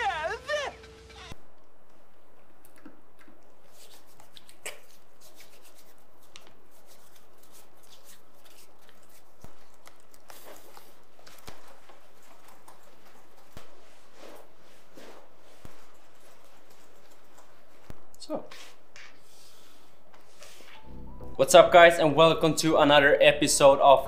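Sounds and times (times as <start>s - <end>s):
hands rubbing together: 3.6s - 11.0s.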